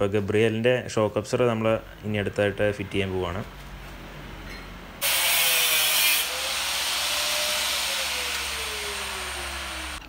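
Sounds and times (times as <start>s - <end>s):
power tool whine and hiss: 5.0s - 10.0s.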